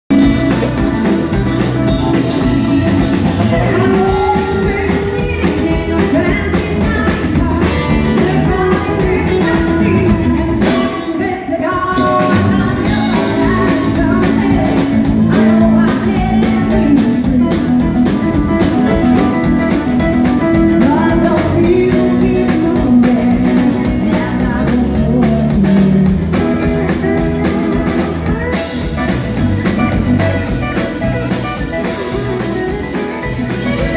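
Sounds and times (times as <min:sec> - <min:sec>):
drum kit: 0:00.0 - 0:33.9
guitar: 0:00.0 - 0:33.9
woman singing into a microphone: 0:02.6 - 0:18.3, 0:20.4 - 0:28.3.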